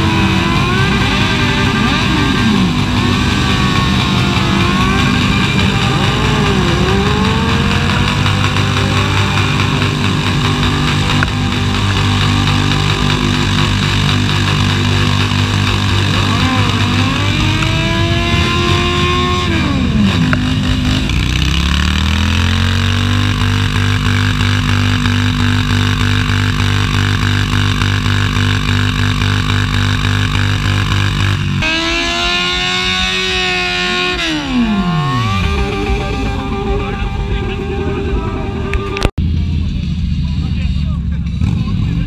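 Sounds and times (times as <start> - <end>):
motorcycle engines revving hard: 0.0 - 39.3, 40.4 - 42.0.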